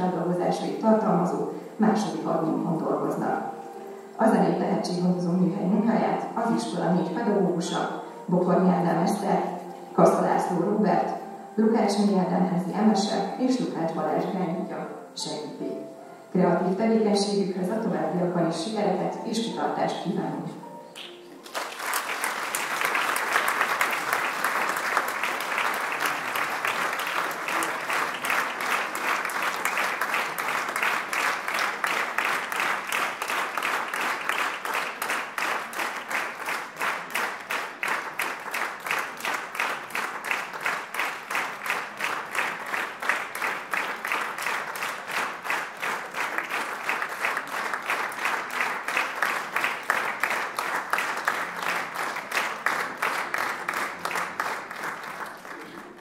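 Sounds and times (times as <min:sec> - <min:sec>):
audience applauding: 0:21.0 - 0:56.0.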